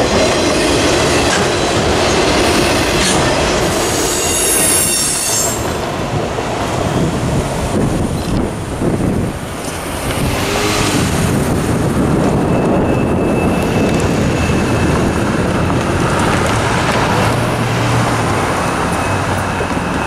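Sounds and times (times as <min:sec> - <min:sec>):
cars driving over railroad crossing: 0:00.0 - 0:20.0.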